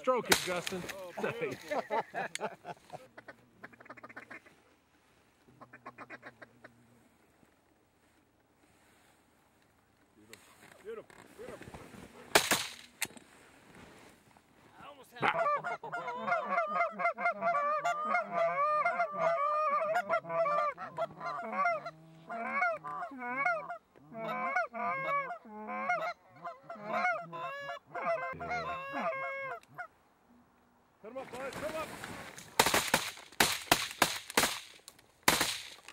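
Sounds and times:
geese honking and clucking: 3.0 - 4.8, 5.5 - 7.0, 15.2 - 30.0.

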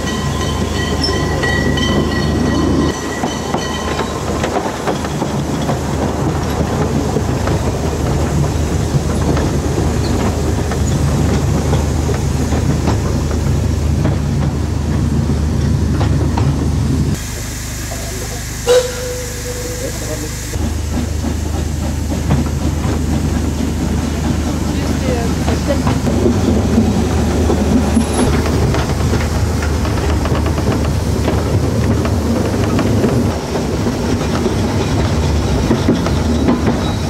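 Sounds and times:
wheels clacking over rail joints: 0.0 - 17.2, 18.7 - 37.0
train rumble: 0.0 - 37.0
high wheel squeal: 17.4 - 20.6, 27.8 - 28.4, 36.1 - 37.0.

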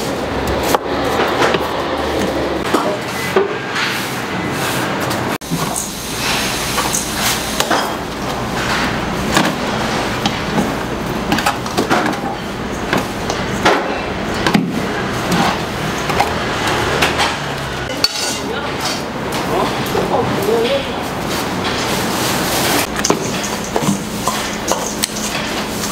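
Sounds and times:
spoon clinking on metal bowls: 17.9 - 19.0.

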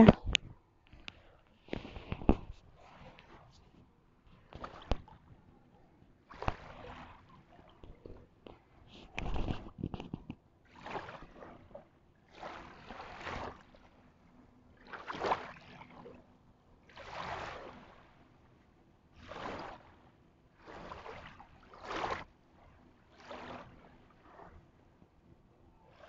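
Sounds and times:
waves lapping on pebbles: 4.3 - 5.3, 6.2 - 14.0, 14.8 - 16.2, 16.8 - 18.4, 19.1 - 24.6.

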